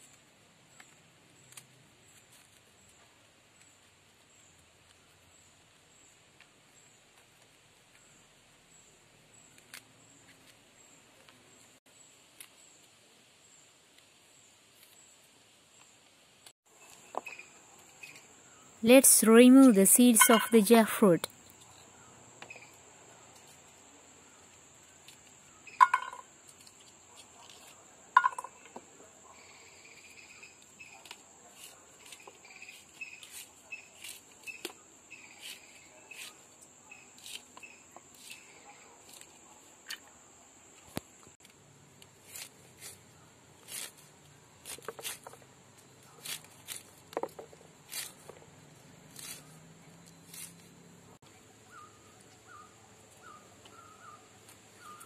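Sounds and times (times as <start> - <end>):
outdoor background hiss: 0.0 - 55.0
crickets chirring: 21.4 - 27.0, 28.2 - 31.3, 32.2 - 41.3
fruit being cut with blade: 31.0 - 40.0, 42.2 - 45.4, 46.0 - 48.4, 49.1 - 50.7.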